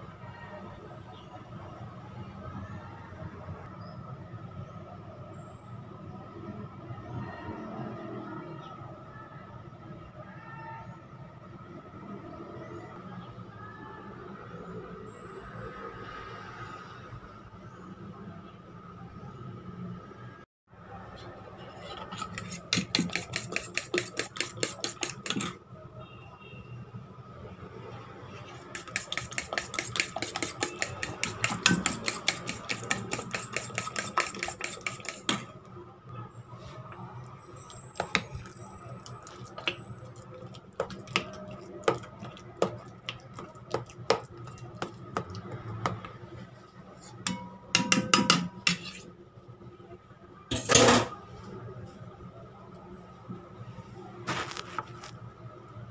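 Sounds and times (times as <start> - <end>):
eggs beaten in metal bowl: 21.6 - 25.6, 28.3 - 35.6, 37.7 - 46.2, 47.1 - 49.0.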